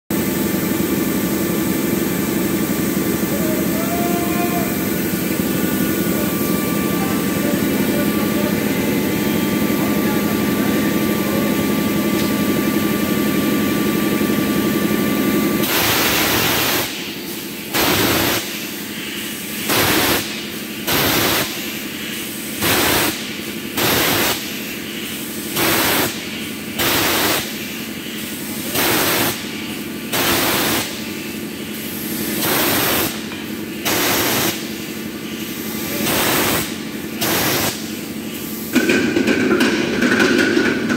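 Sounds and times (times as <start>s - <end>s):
machine hum: 0.1s - 40.9s
bursts of hissing air: 15.6s - 39.2s.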